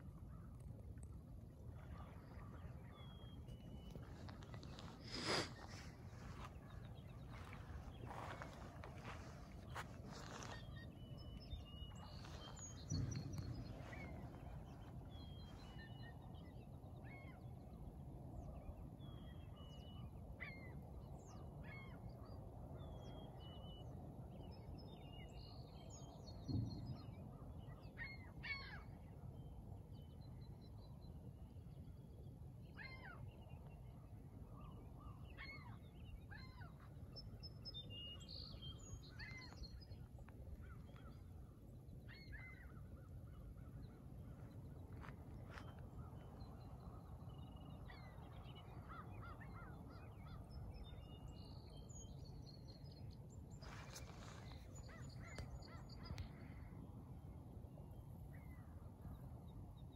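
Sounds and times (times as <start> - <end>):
birds chirping: 3.0 - 15.5
dull low thumps: 12.4 - 15.1.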